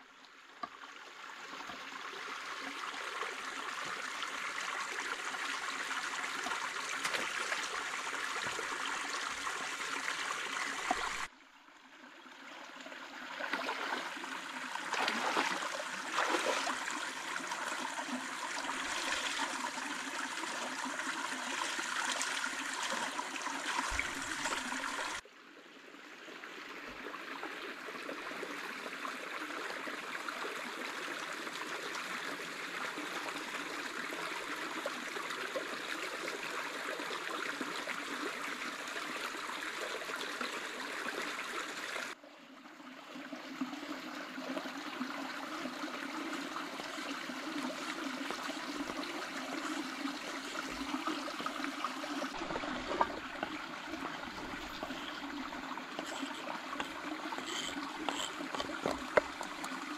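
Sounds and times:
stream water rushing: 13.2 - 25.2, 43.5 - 59.9
water splashing: 13.4 - 20.0, 48.1 - 59.9.

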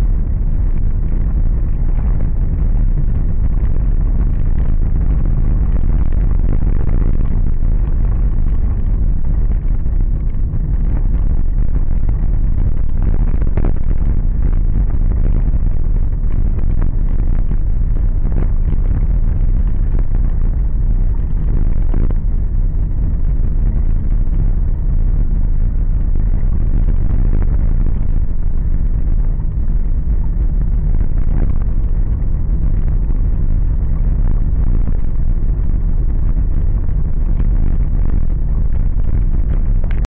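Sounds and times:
car engine and tyre rumble: 0.0 - 40.0.

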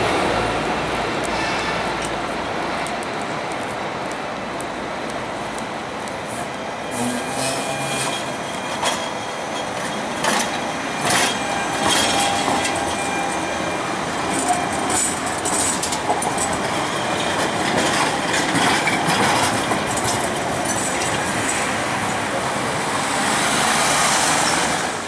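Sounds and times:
tram rumbling past: 0.0 - 25.0
wheels knocking on rails: 14.2 - 21.7.

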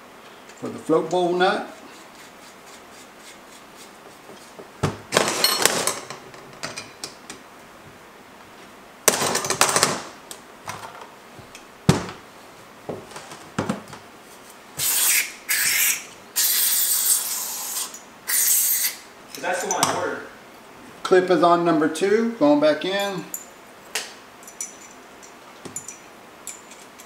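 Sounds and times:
scraping and rustling: 13.0 - 14.6.

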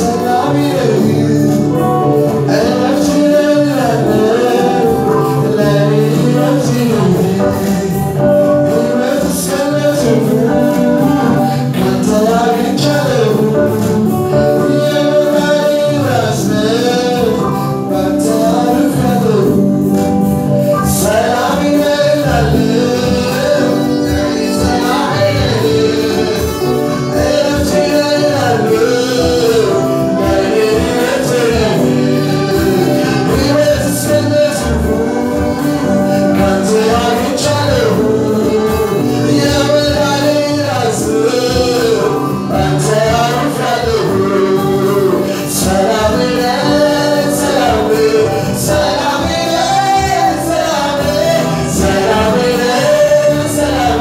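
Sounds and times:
choir singing: 0.0 - 19.9, 20.7 - 54.0
instrumental accompaniment: 0.0 - 54.0
man singing into a microphone: 0.0 - 54.0.

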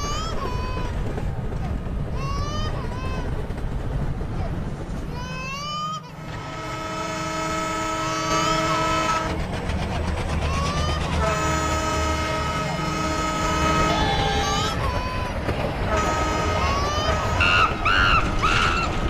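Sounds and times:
baby crying: 0.0 - 1.0, 10.4 - 11.2, 13.5 - 15.4, 16.3 - 19.0
train rumbling: 0.0 - 19.0
locomotive horn blasts: 6.2 - 9.4, 11.2 - 14.4, 15.9 - 17.6.

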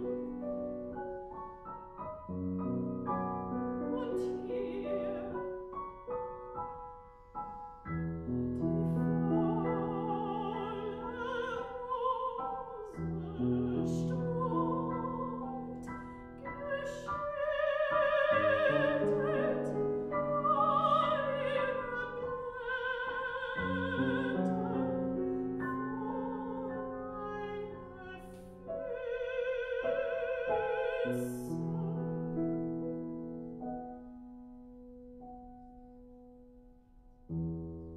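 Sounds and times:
grand piano chords: 0.0 - 37.9
soprano singing with vibrato: 3.6 - 5.7, 8.9 - 32.6.

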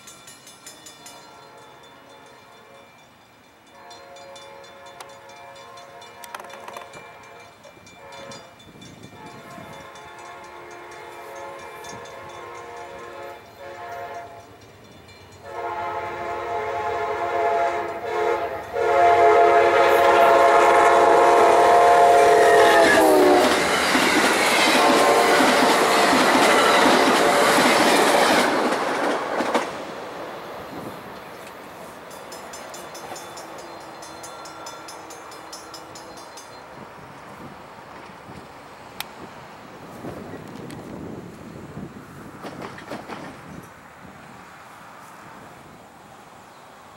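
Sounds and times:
passenger train rushing and clattering: 0.0 - 46.9
locomotive air horn blasts: 1.2 - 3.0, 3.7 - 14.5, 15.4 - 23.8, 24.6 - 28.3.

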